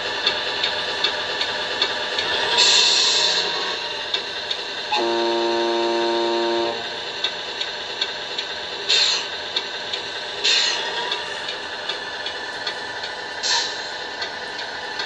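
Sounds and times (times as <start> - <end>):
truck air horn: 4.9 - 6.8.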